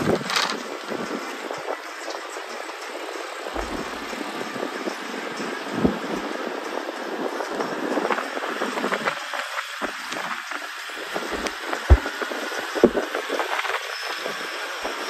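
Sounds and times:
small rattles and clicks: 0.0s - 6.3s
road noise inside vehicle: 0.0s - 15.0s
short low thumps: 3.6s - 4.3s, 11.4s - 12.2s.

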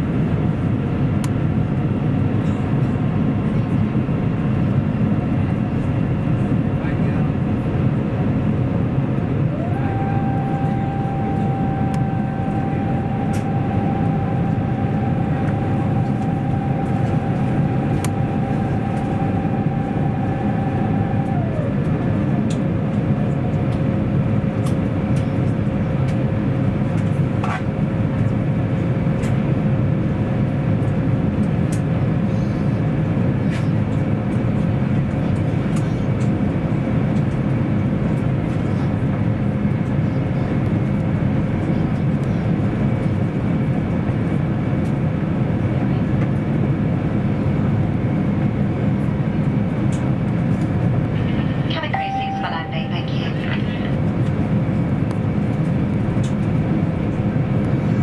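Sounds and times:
aircraft cabin engine hum: 0.0s - 58.0s
high tone: 9.6s - 21.8s, 51.8s - 53.8s.

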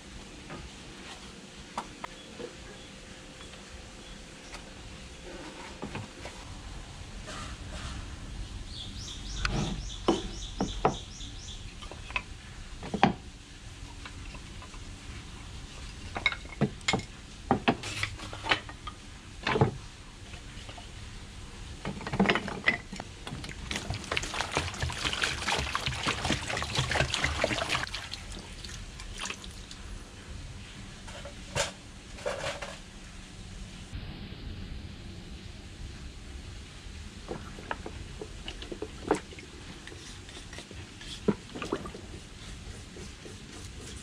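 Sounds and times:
water splashing onto wood: 23.3s - 29.8s.

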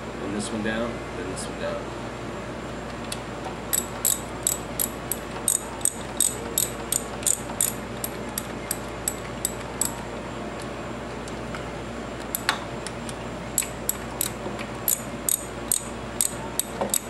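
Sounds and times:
socket ratchet clicking: 3.7s - 7.8s, 8.4s - 10.0s, 13.6s - 17.0s.

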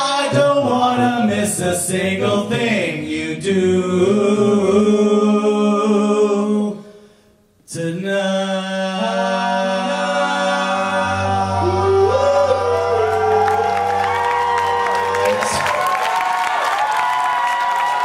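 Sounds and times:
male a cappella group singing: 0.0s - 7.0s, 7.7s - 14.3s.

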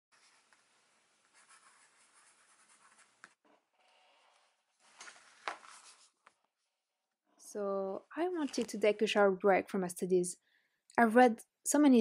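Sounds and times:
pen scratching on paper: 1.2s - 3.4s.

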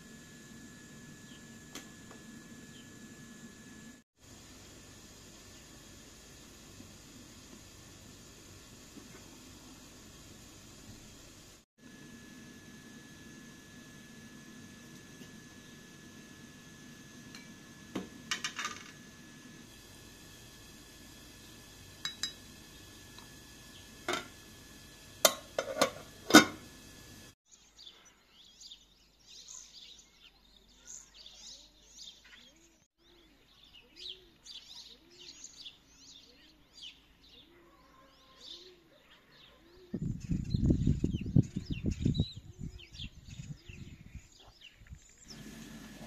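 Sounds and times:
small birds chirping: 27.5s - 46.0s.

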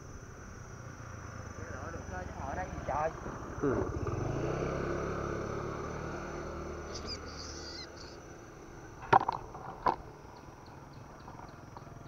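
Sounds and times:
vehicle engine hum: 0.0s - 12.0s
high bird chirps: 6.8s - 8.4s.

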